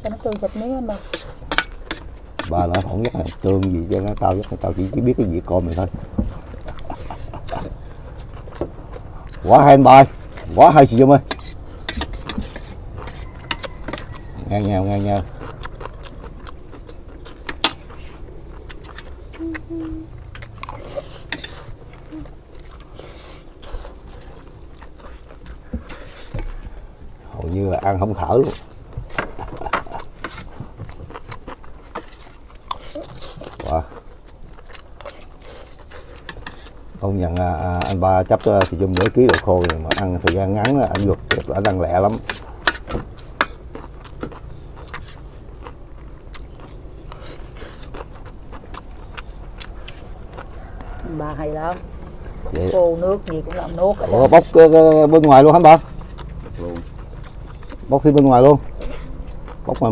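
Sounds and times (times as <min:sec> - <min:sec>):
chewing and mouth noises: 0:00.0 - 0:59.9
spoons scraping metal trays: 0:10.6 - 0:14.2.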